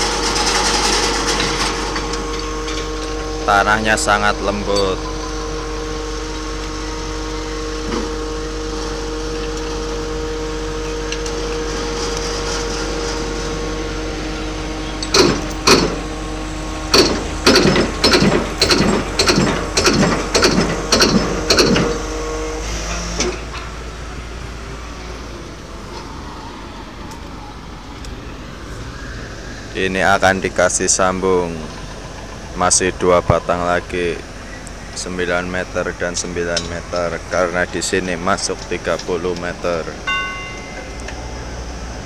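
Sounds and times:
piling rig engine running: 0:00.0 - 0:42.0
heavy piling hammer blows: 0:15.0 - 0:16.1, 0:16.9 - 0:22.0.

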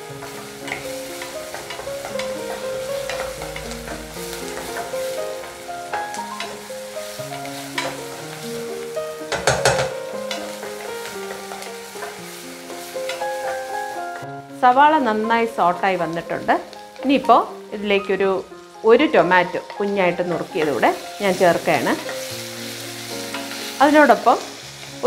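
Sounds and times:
onion sizzling in a pot: 0:00.0 - 0:25.0.

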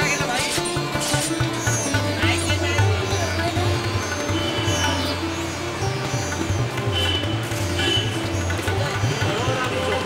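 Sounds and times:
plucked string melody: 0:00.0 - 0:10.0.

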